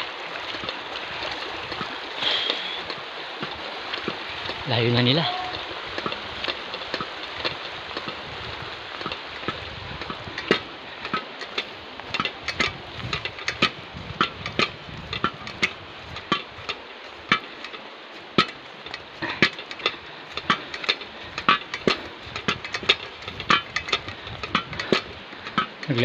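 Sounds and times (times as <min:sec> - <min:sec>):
metal pots clanking: 0:08.9 - 0:26.0.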